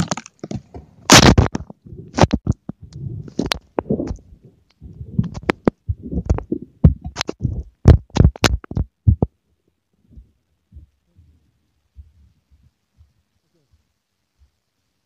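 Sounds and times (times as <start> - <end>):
knocks and scrapes on microphone: 0.0 - 9.3
faint thumps: 0.4 - 9.3.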